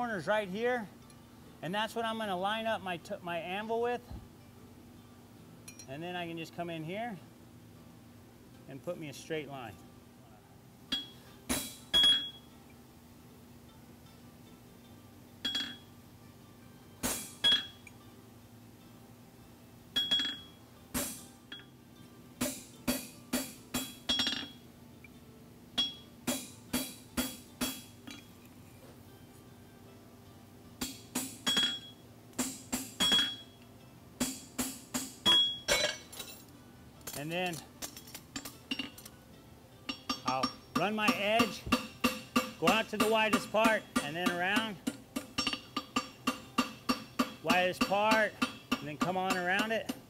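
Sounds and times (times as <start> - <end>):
hammer striking steel punch: 10.9 - 12.4, 17.0 - 17.8, 20.0 - 21.6, 22.4 - 24.6, 25.8 - 28.2, 30.8 - 33.5, 34.2 - 36.0, 39.9 - 50.0.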